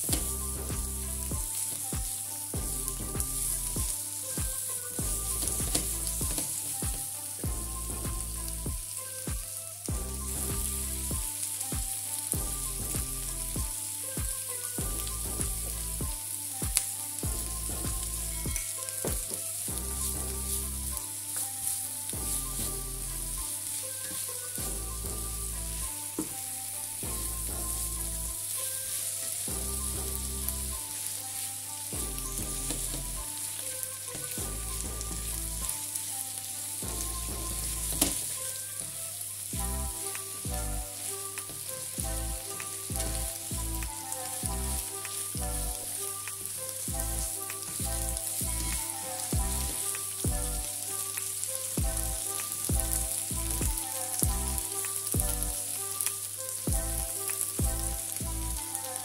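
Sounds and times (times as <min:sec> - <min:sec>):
background music: 0:00.0 - 0:59.0
vegetables sizzling in a pan: 0:00.0 - 0:59.0.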